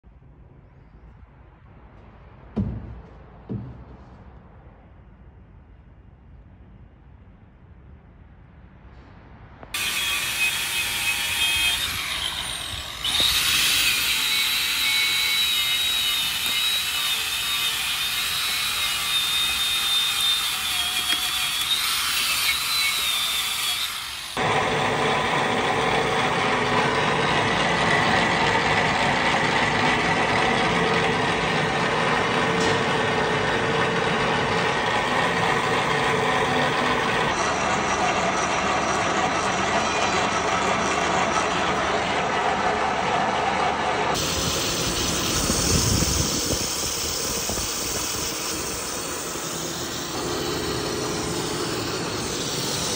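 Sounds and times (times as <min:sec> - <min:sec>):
high whining power tool: 0:09.8 - 0:42.4, 0:44.1 - 0:52.9.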